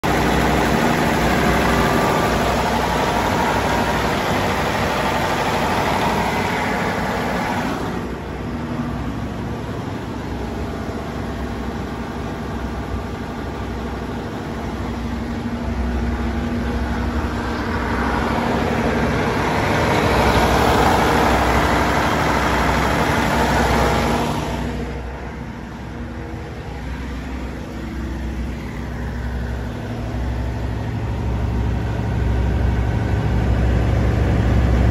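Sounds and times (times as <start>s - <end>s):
diesel generator engine running: 0.0s - 34.9s.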